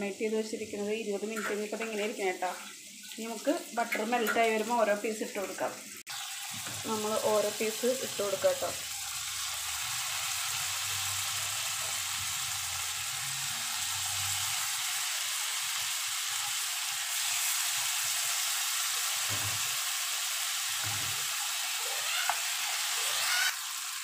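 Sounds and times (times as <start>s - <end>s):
chicken sizzling in a pan: 0.0s - 24.0s.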